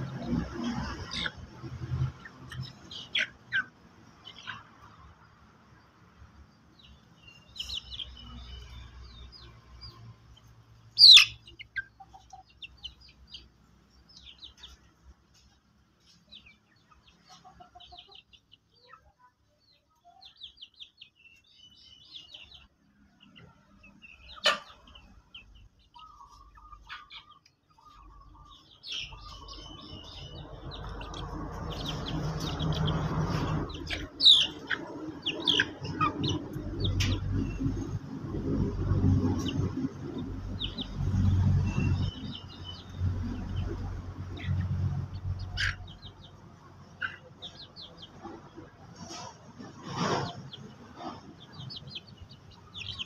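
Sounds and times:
chicks peeping: 0.0s - 53.0s
loud sharp chicken call: 11.0s - 11.4s.

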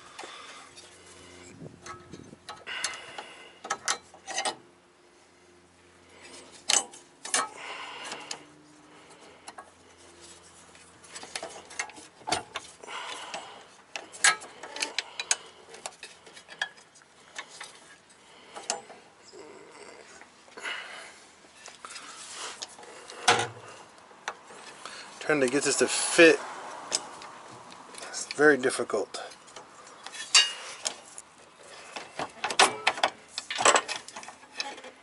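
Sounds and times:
sharp metal clanks: 30.1s - 30.6s.

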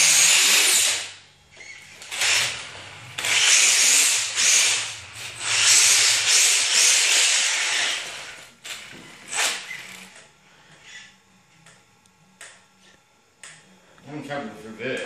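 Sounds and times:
rc car drivetrain whirring: 0.0s - 10.2s.

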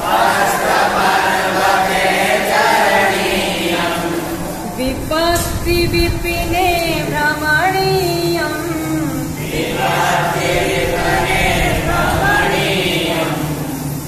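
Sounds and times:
many voices chanting in unison: 0.0s - 5.1s, 8.8s - 14.0s.

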